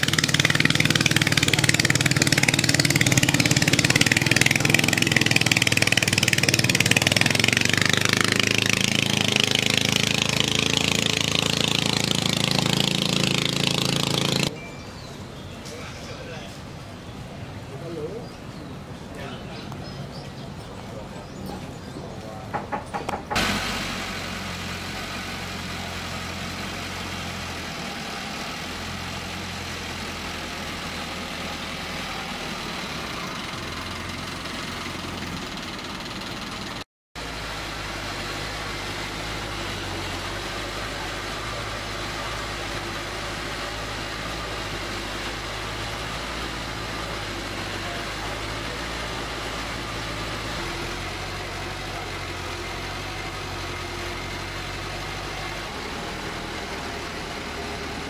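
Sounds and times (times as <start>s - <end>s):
boat engine humming: 0.0s - 58.0s
wash of noise: 23.3s - 33.8s.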